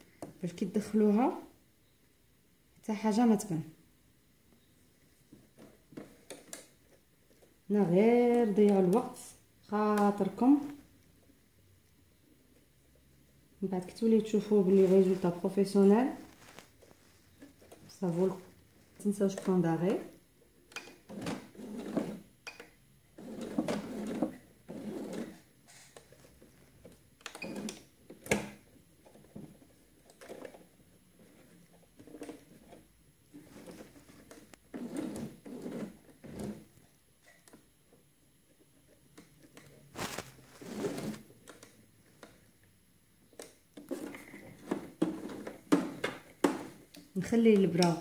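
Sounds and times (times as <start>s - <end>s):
fabric rustling: 14.4s - 19.6s, 39.7s - 41.4s
sewing machine stitching: 19.2s - 26.2s, 33.4s - 36.6s.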